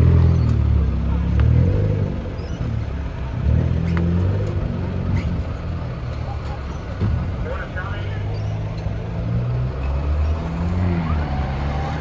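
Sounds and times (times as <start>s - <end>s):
diesel engine rumbling: 0.0s - 12.0s.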